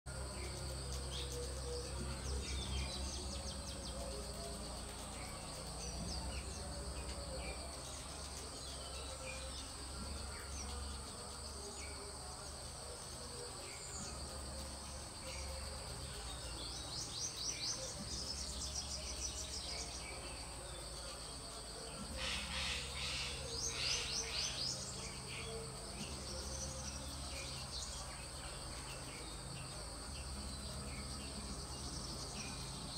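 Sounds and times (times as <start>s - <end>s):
insects droning: 0.1s - 32.9s
bird chirps: 13.2s - 32.9s.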